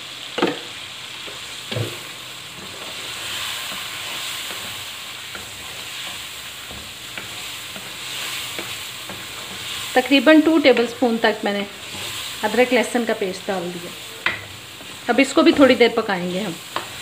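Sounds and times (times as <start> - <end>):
chicken sizzling in hot oil: 0.0 - 17.0
wooden spatula scraping pan: 1.3 - 13.0.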